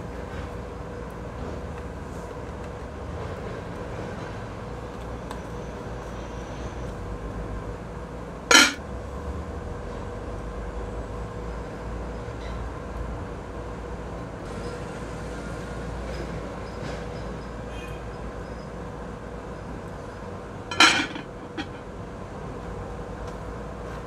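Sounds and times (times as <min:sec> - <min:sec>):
pot lid clanking on pot: 0:08.5 - 0:08.8, 0:20.7 - 0:21.9.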